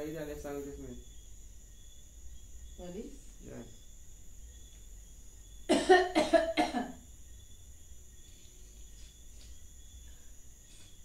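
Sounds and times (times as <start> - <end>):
woman coughing: 5.7 - 7.0.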